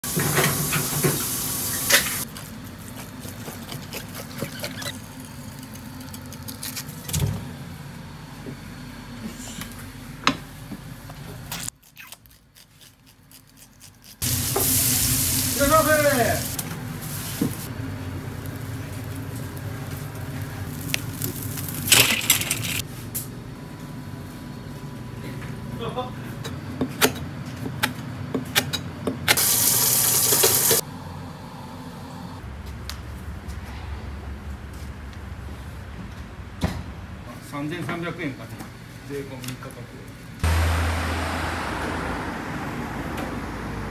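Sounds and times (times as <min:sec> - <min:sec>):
burning straw crackling: 0:04.8 - 0:06.9, 0:12.6 - 0:23.2
loud steady hiss: 0:14.2 - 0:17.7.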